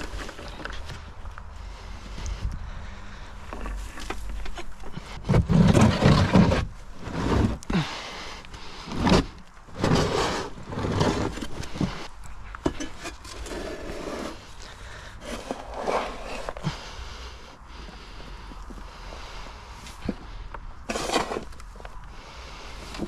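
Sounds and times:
scraper scraping wooden tray: 4.9s - 7.9s, 8.9s - 12.0s, 12.7s - 14.5s, 15.2s - 16.6s, 20.9s - 21.6s.

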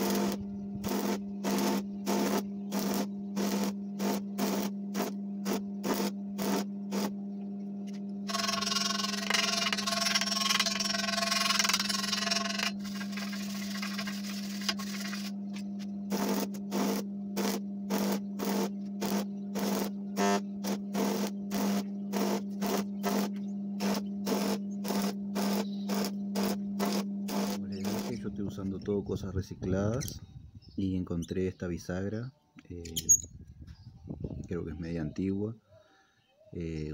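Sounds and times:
welding arc crackling: 0.0s - 7.1s, 16.1s - 28.2s
electrical hum: 0.0s - 35.8s.

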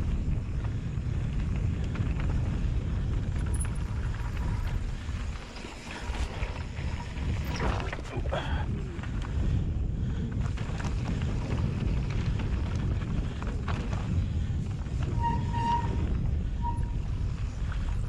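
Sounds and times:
bike clicks and rattles: 0.0s - 18.0s
rumble of bike tyres on dirt: 0.0s - 18.0s
wind on microphone: 0.0s - 18.0s
short squeal: 15.1s - 17.0s.

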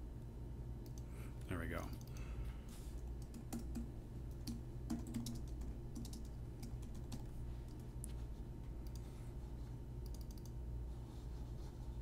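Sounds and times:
steady low hum: 0.0s - 12.0s
typing on keyboard: 3.2s - 7.8s, 10.0s - 10.6s.

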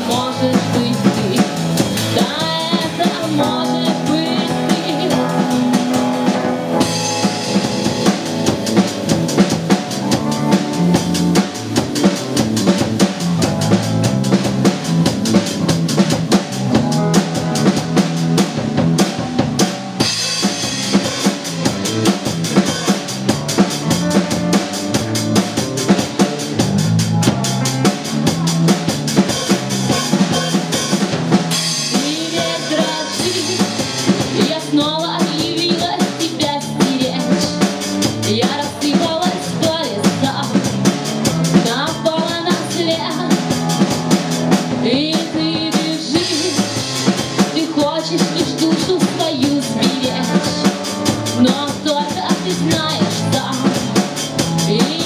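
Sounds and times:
person singing: 0.0s - 5.8s, 31.8s - 40.7s, 41.6s - 43.4s, 44.8s - 46.8s, 47.5s - 55.0s
drum kit beat: 0.0s - 55.0s
electric bass: 0.0s - 55.0s
electric guitar: 0.0s - 55.0s
keyboard: 0.0s - 55.0s.

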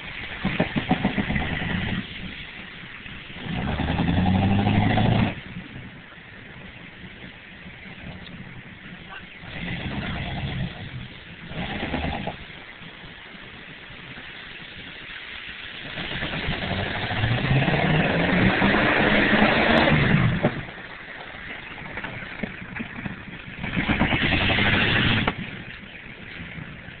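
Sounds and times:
tyres churning mud: 0.0s - 5.6s, 7.0s - 27.0s
truck engine revving: 0.4s - 2.2s, 3.3s - 5.5s, 9.1s - 12.5s, 15.8s - 21.0s, 23.5s - 25.5s.

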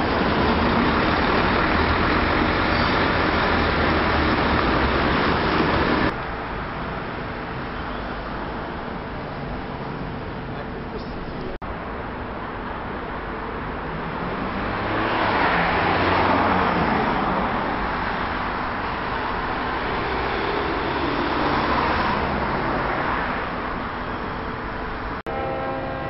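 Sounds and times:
road traffic noise: 0.0s - 26.0s.

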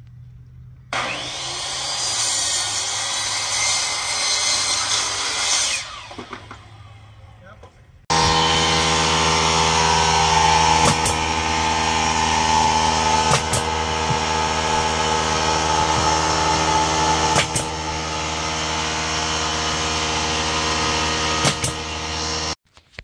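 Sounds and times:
air compressor running: 8.1s - 22.6s
nail gun firing into wood: 10.8s - 11.3s, 13.2s - 14.4s, 17.3s - 17.8s, 21.4s - 21.9s.

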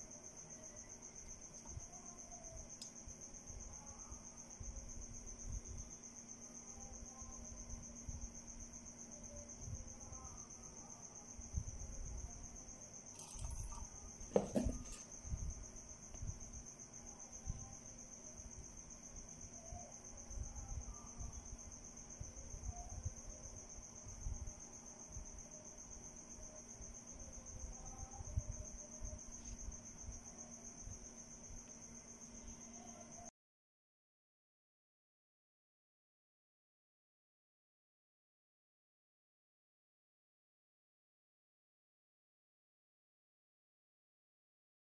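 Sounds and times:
crickets chirring: 0.0s - 33.3s
faint low hum: 0.0s - 33.3s
handling knocks and rustles: 13.2s - 15.1s.

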